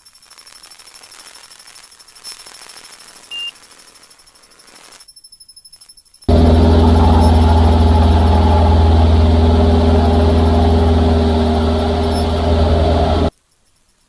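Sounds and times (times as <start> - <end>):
propeller engine running: 6.3 - 13.3.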